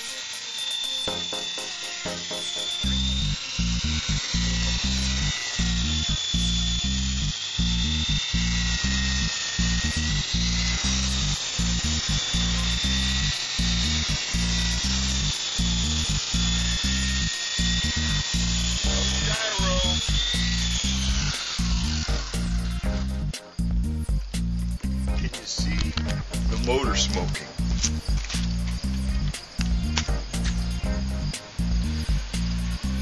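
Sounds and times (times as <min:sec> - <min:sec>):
background music with steady beat: 0:00.0 - 0:03.4, 0:20.0 - 0:33.0
rc helicopter motor whine: 0:00.0 - 0:33.0.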